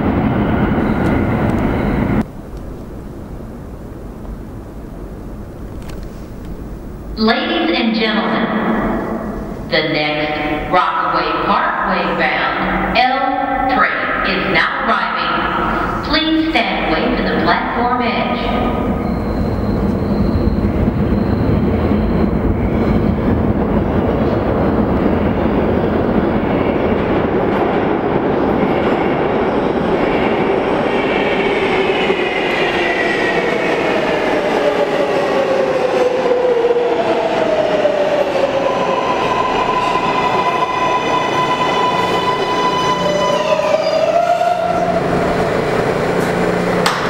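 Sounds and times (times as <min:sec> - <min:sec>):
train rail and wheel noise: 0:00.0 - 0:47.0
steady high tone: 0:07.2 - 0:23.3.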